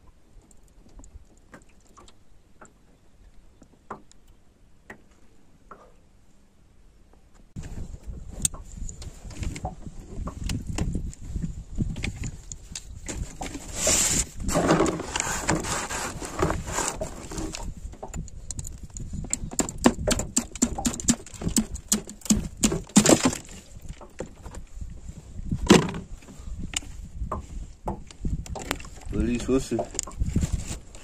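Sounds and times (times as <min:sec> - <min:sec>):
scraping and rustling: 0:12.0 - 0:17.8, 0:28.6 - 0:31.0.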